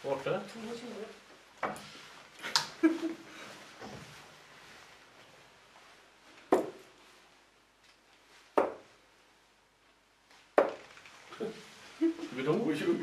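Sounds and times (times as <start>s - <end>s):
darts striking dartboard: 6.5s - 6.8s, 8.6s - 8.9s, 10.6s - 10.8s.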